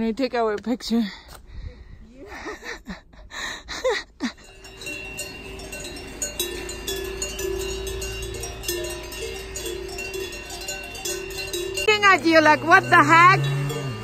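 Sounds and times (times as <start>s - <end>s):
cowbells clanking: 4.3s - 14.0s.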